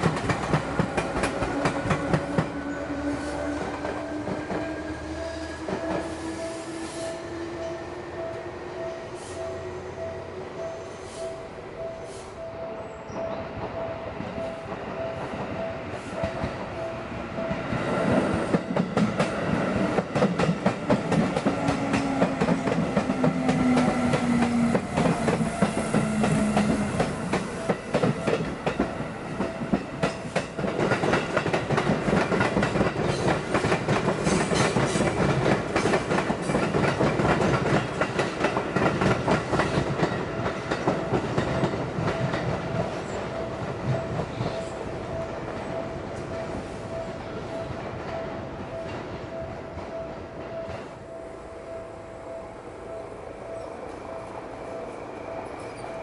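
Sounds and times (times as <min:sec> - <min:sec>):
train wheels clacking over rails: 0:00.0 - 0:07.6, 0:17.4 - 0:48.2
low train motor tone: 0:00.0 - 0:30.1
level crossing warning bell: 0:02.7 - 0:19.2, 0:20.2 - 0:33.5, 0:34.2 - 0:56.0.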